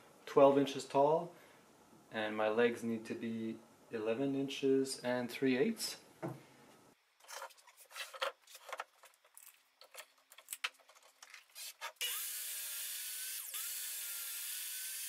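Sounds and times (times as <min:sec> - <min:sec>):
clicks and knocks of wood and tools: 0:07.2 - 0:11.6
miter saw cutting board: 0:11.6 - 0:15.0.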